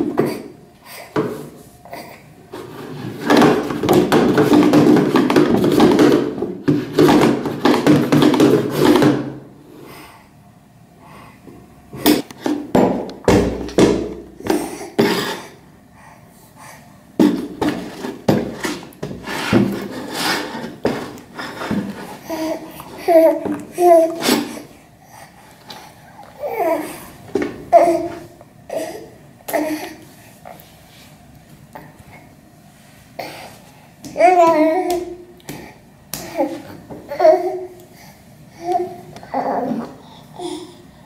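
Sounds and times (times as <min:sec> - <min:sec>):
plastic bucket scraping on tiles: 0:02.5 - 0:09.4, 0:17.2 - 0:24.6
hollow knocks and clanks: 0:02.6 - 0:09.4.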